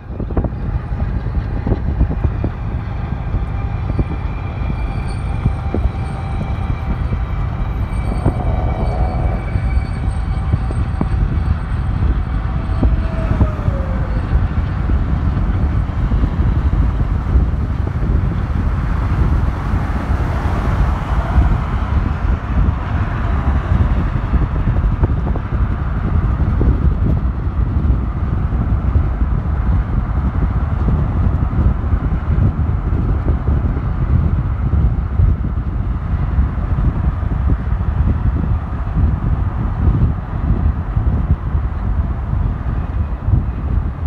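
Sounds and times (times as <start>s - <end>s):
freight train rumbling past: 0.0s - 44.0s
wind buffeting microphone: 0.0s - 44.0s.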